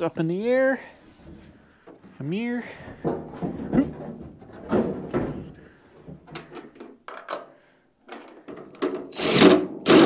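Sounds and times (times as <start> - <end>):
loud rasping burst: 9.1 - 10.0.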